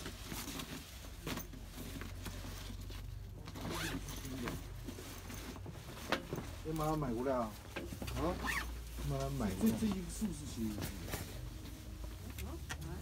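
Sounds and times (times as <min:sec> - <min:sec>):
fabric rustling: 0:00.0 - 0:13.0
backpack zipper pulled open: 0:03.6 - 0:04.2.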